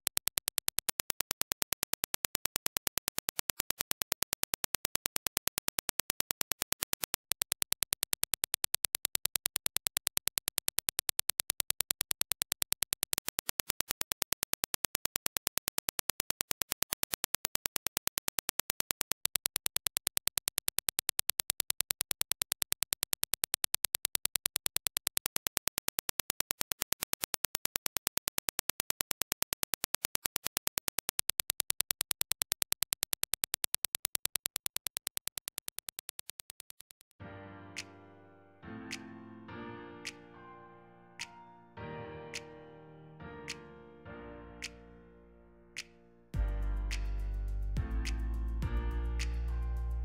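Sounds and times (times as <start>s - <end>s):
rapid train of sharp clicks: 0.0s - 37.2s.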